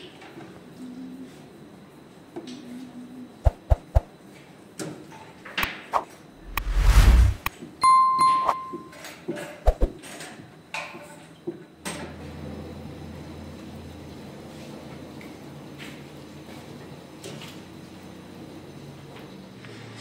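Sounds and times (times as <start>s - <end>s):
whoosh: 6.4s - 7.5s
bell ding: 7.8s - 9.0s.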